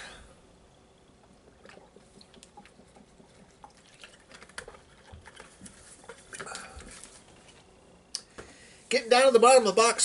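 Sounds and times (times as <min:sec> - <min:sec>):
person gulping a drink: 0:01.2 - 0:07.1.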